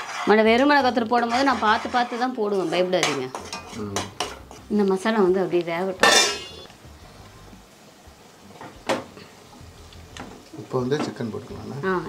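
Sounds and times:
metal ladle scraping a pan: 0.0s - 4.8s, 6.0s - 6.7s.

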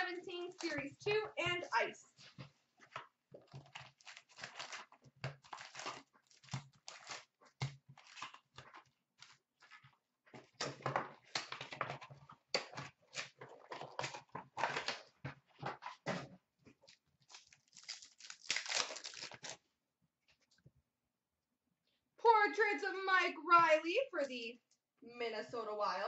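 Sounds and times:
foil packs crinkling: 3.4s - 9.8s, 16.8s - 19.6s.

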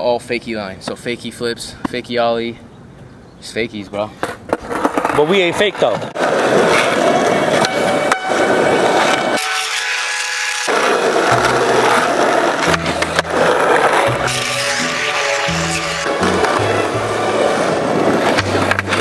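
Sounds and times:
skateboard wheels rolling on asphalt: 2.9s - 19.0s
skateboard landing clack: 10.7s - 14.5s.

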